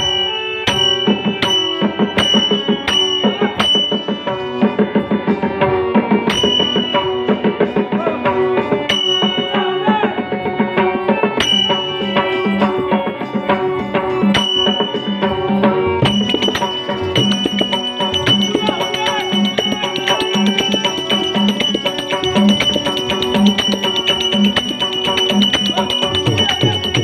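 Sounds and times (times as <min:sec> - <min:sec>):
ringing cymbal strikes: 0:00.0 - 0:04.8, 0:06.3 - 0:07.8, 0:14.3 - 0:27.0
harmonium melody: 0:00.0 - 0:27.0
hand drum strokes: 0:16.0 - 0:27.0.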